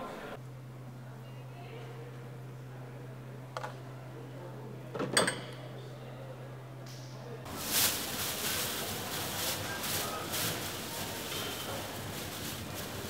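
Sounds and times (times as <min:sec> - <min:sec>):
plastic bag rustling: 0:07.5 - 0:13.0.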